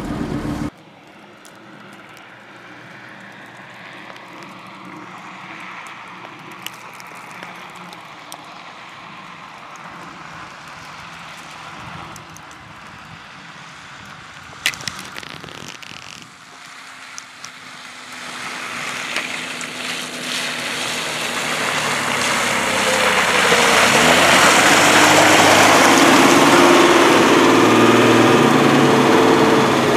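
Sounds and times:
truck engine approaching: 0.0s - 29.9s.

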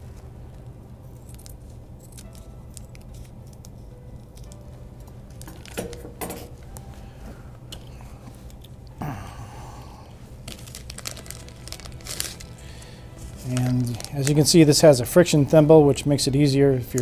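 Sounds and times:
plastic bag crinkling: 5.4s - 5.9s, 10.2s - 14.9s.

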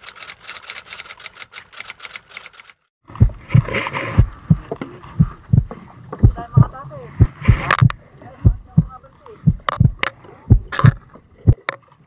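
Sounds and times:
low dull thumps: 3.1s - 11.6s.

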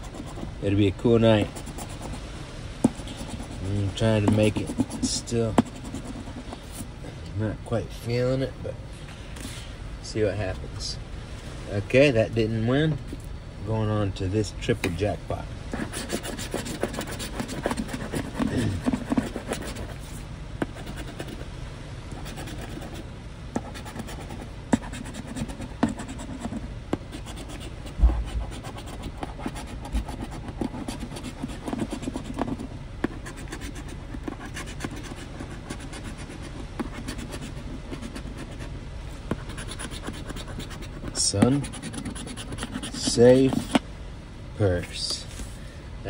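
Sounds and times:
coin scraping scratch card: 0.0s - 0.5s, 1.5s - 2.2s, 2.8s - 6.6s, 15.8s - 21.4s, 22.2s - 23.0s, 23.6s - 38.7s, 39.3s - 43.8s.

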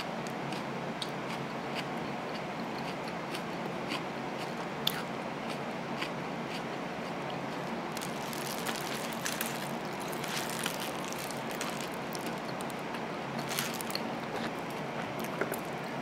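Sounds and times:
chewing food: 0.0s - 16.0s
soft clicks and crunches: 7.6s - 15.7s.

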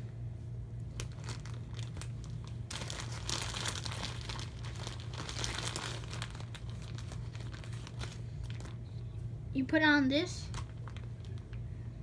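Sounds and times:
steady low hum: 0.0s - 12.0s
plastic packaging crinkling: 0.8s - 9.0s, 10.4s - 11.7s.

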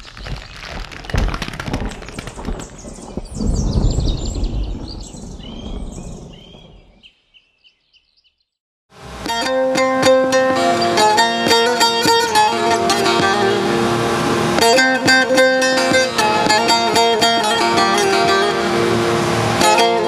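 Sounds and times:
birds chirping: 1.7s - 8.6s
loud rushing noise: 8.9s - 20.0s
plucked long-necked lute: 9.0s - 20.0s.

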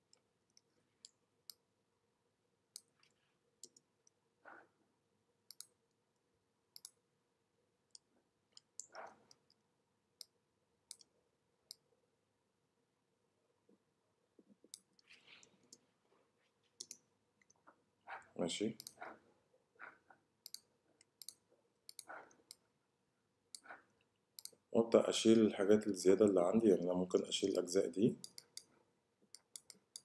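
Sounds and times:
computer mouse clicks: 2.7s - 4.2s, 5.5s - 6.0s, 6.7s - 7.0s, 7.9s - 9.6s, 10.2s - 11.1s, 14.4s - 15.8s, 16.8s - 17.6s, 18.8s - 19.2s, 19.8s - 22.6s, 23.5s - 24.6s, 28.2s - 30.0s.

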